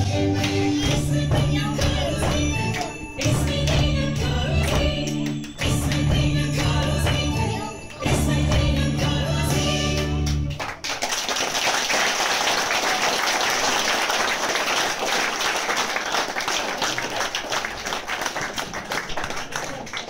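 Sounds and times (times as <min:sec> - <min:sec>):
folk dance music: 0:00.0 - 0:10.8
audience applause: 0:10.2 - 0:20.0.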